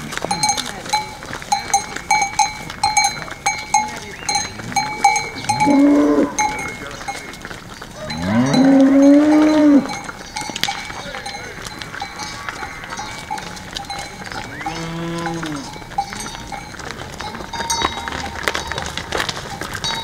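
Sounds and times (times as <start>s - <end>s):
cowbells clanking: 0.0s - 20.0s
cow mooing: 4.6s - 6.7s, 8.0s - 10.0s, 14.4s - 15.8s.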